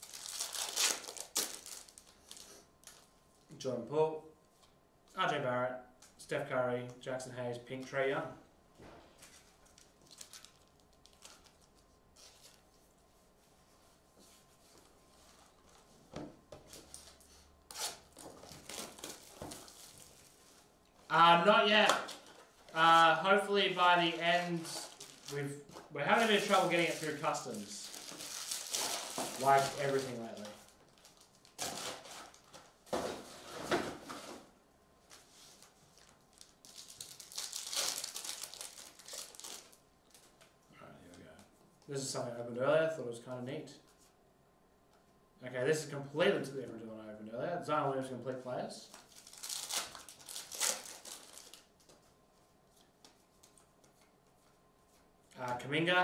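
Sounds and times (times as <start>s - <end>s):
foil wrapper tearing and crinkling: 0.0s - 3.0s, 9.7s - 12.6s, 16.8s - 20.2s, 26.1s - 32.5s, 35.9s - 40.3s, 49.0s - 51.9s.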